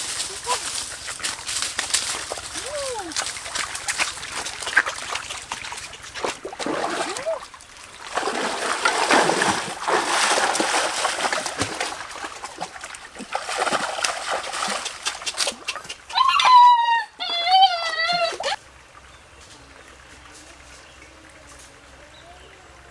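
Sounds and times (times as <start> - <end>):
water splashing in a stream: 0.0 - 16.7.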